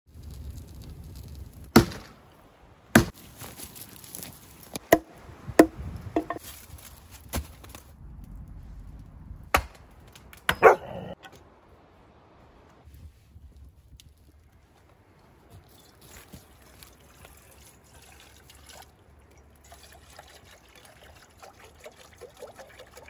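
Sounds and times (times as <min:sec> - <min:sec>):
axe chopping wood: 0:01.7 - 0:02.2, 0:02.9 - 0:03.2, 0:04.8 - 0:06.4, 0:09.5 - 0:10.9
dog barking: 0:10.5 - 0:11.2.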